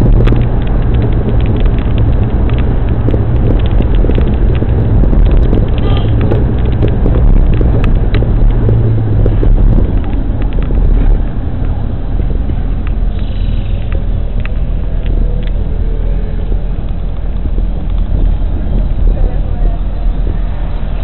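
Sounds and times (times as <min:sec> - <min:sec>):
small clicks and rattles: 0:00.0 - 0:13.0
road and engine rumble in car: 0:00.0 - 0:21.0.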